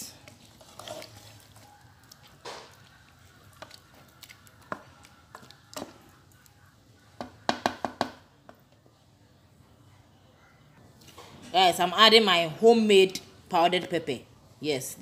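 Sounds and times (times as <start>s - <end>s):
metal spoon stirring in pot: 0.0s - 7.8s
spoon knocking against pot: 7.2s - 8.6s.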